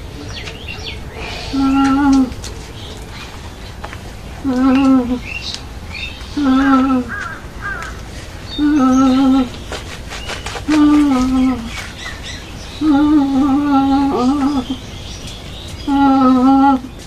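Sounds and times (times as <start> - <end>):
animal call with wavering pitch: 0.0 - 2.7, 4.4 - 5.2, 6.4 - 7.2
small birds chirping: 0.0 - 17.0.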